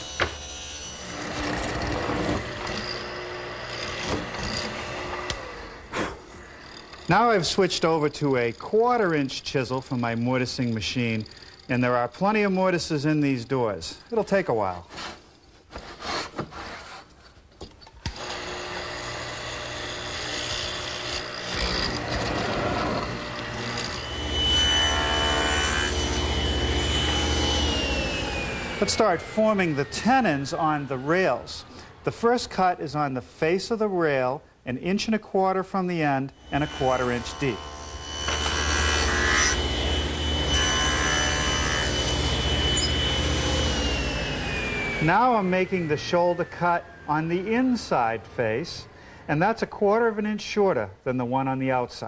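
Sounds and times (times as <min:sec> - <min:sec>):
mortising machine chisel rasping wood: 0:00.0 - 0:12.7, 0:18.1 - 0:32.9, 0:36.4 - 0:48.2
table saw whine and hum: 0:00.0 - 0:14.2, 0:18.1 - 0:33.2, 0:36.3 - 0:49.3.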